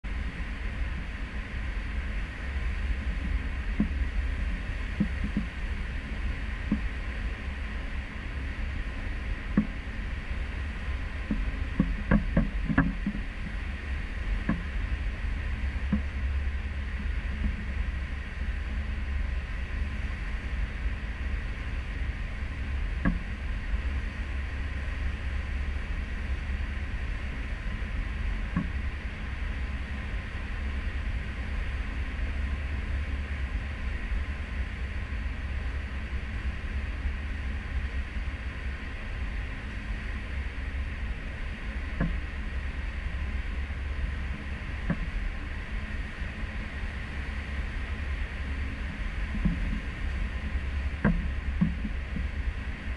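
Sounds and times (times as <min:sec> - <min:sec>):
ship engine low rumble: 0:00.0 - 0:52.9
churning wake water: 0:00.1 - 0:52.9
wind on camera: 0:00.1 - 0:52.9.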